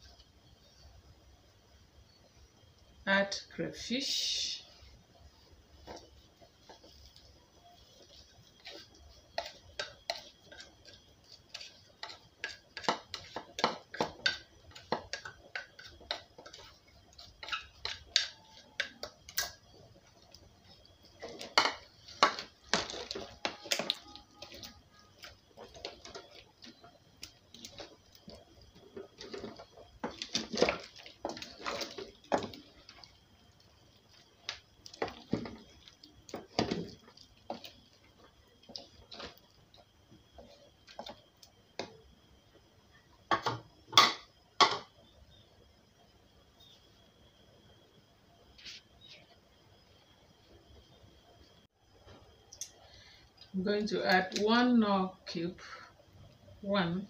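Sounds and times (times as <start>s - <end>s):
spatula stirring in metal pot: 4.8s - 41.9s.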